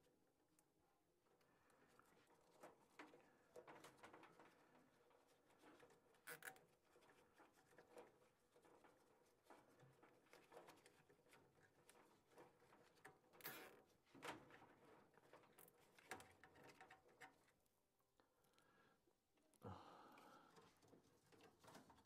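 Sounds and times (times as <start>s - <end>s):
gloved hands rustling wiring: 1.4s - 17.8s.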